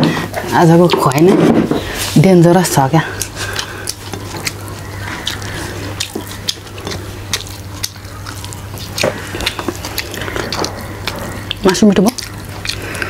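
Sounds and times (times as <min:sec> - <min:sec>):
steady low hum: 0:00.0 - 0:13.0
wet chewing and lip smacks: 0:03.0 - 0:13.0.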